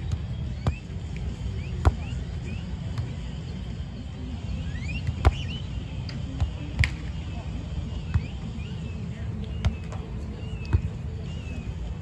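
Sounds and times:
volleyball slaps by hand: 6.8s - 7.1s.

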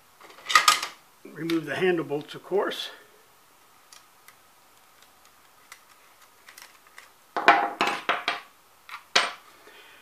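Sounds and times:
tools clattering on workbench: 7.4s - 8.5s, 9.2s - 9.4s.

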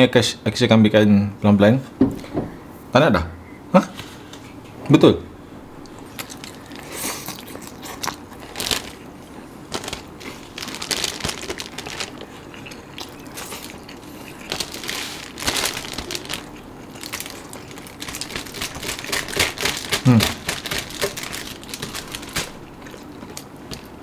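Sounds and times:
chewing crunchy food: 5.8s - 24.0s
newspaper wrapping crackling: 6.2s - 24.0s.

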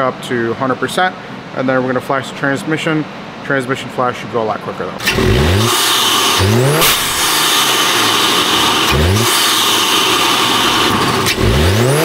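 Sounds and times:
car engine revving in short blips: 5.0s - 12.0s.

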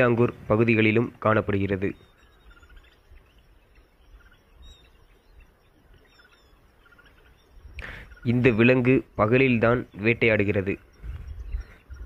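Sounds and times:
small bird chirping: 0.0s - 12.0s.

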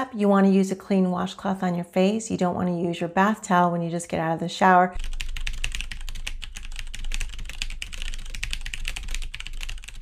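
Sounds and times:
keyboard typing clicks: 5.0s - 10.0s.

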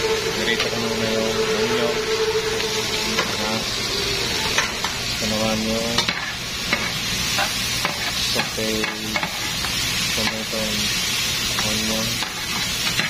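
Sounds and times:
vegetables sizzling in oil: 2.5s - 13.0s.

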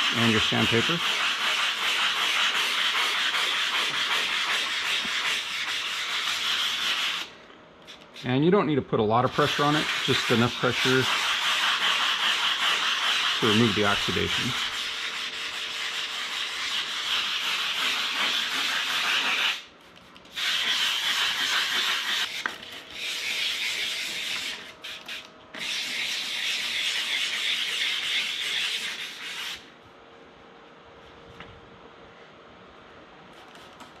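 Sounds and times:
sandpaper scrubbing plastic: 0.0s - 7.3s, 9.4s - 19.6s, 20.3s - 29.6s.

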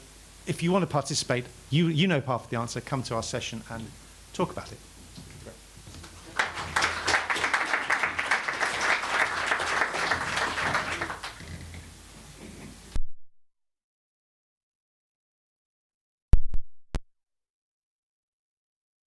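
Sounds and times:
audience applauding: 6.2s - 11.8s.

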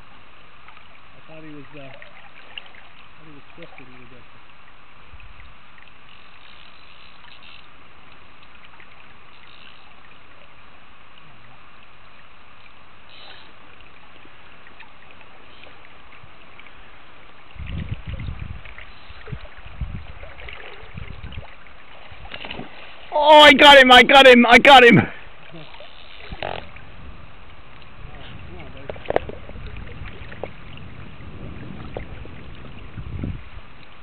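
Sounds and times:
low rumbling on microphone: 17.4s - 21.6s, 26.3s - 33.9s
river current rushing: 18.7s - 28.6s.

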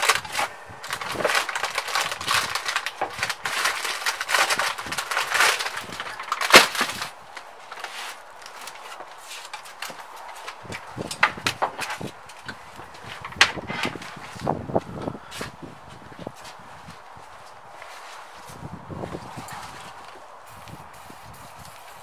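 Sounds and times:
cloth rubbing and scraping: 16.4s - 20.1s.

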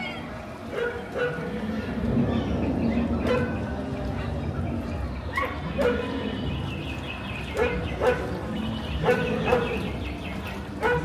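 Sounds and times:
low rumble of boat ride: 0.0s - 11.0s
recorded dog barking: 0.7s - 1.6s, 3.2s - 3.6s, 5.3s - 6.3s, 7.5s - 10.1s, 10.7s - 11.0s.

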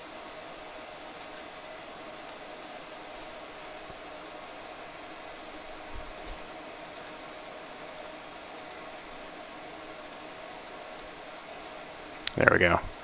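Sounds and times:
room tone hiss: 0.0s - 13.0s
computer mouse clicks: 2.1s - 2.4s, 6.0s - 7.1s, 7.8s - 8.9s, 10.0s - 13.0s.

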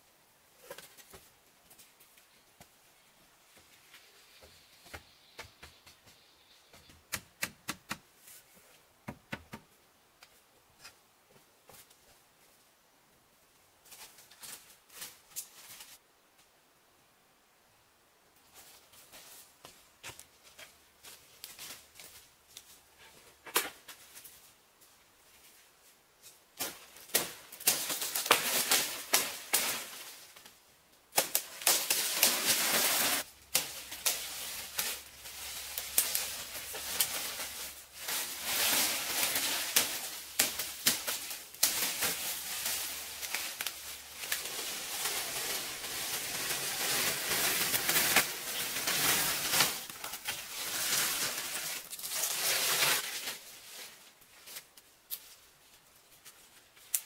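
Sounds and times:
palm fronds rustling and crackling: 0.0s - 6.9s, 13.8s - 16.5s, 18.4s - 57.0s
stems snapping: 31.1s - 32.6s, 33.5s - 35.0s, 35.6s - 37.5s, 39.1s - 44.8s, 56.8s - 57.0s.

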